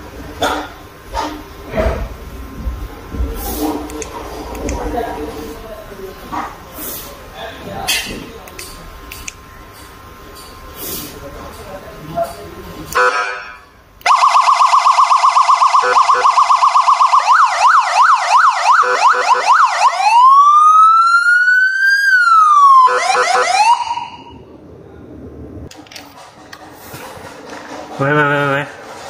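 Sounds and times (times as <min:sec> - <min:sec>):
siren cycling through tones: 0:14.0 - 0:24.5.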